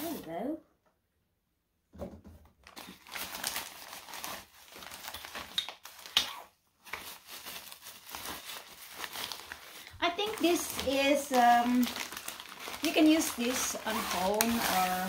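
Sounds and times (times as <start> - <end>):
packaging crinkling and rustling: 2.5 - 15.0
fabric bag being handled: 7.1 - 15.0.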